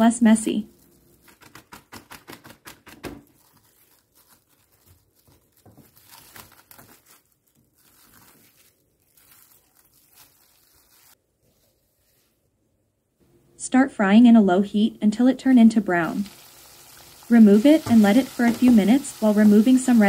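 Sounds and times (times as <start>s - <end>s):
cling film crinkling and rustling: 0.7s - 12.4s.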